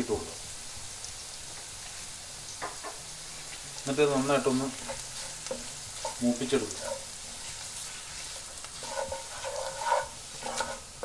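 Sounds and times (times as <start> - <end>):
spices sizzling in oil: 0.0 - 11.0
wooden spoon scraping pot: 4.6 - 11.0.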